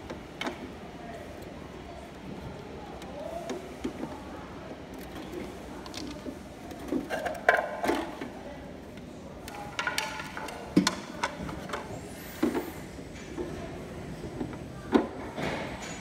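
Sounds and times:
plastic panels clicking and rattling: 9.4s - 11.9s.

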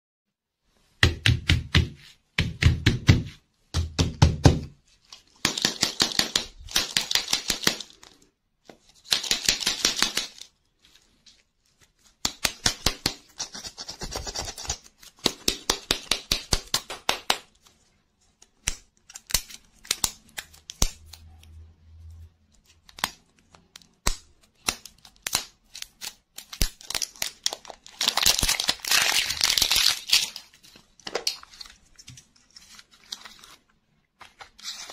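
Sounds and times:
plastic wrappers crinkling and tearing: 24.6s - 34.9s.

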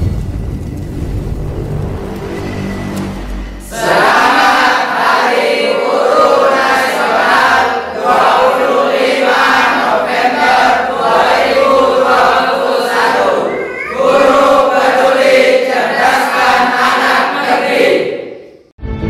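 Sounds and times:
group of boys singing: 3.6s - 18.4s.

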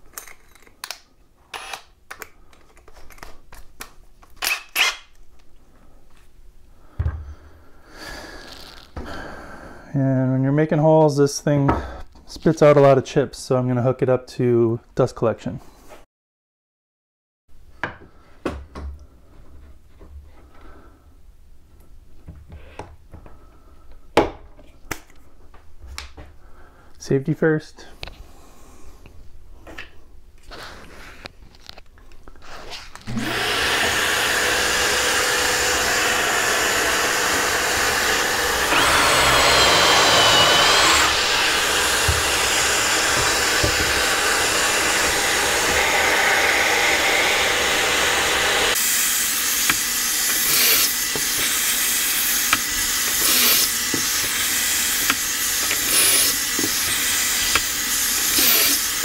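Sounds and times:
cordless drill boring: 1.5s - 1.9s, 33.1s - 59.0s
dust vacuum running: 33.1s - 59.0s.

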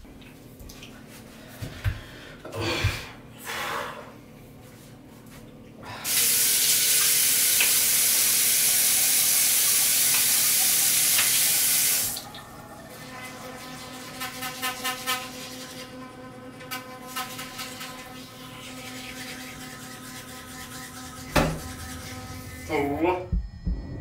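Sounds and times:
faucet running water: 6.0s - 22.8s.

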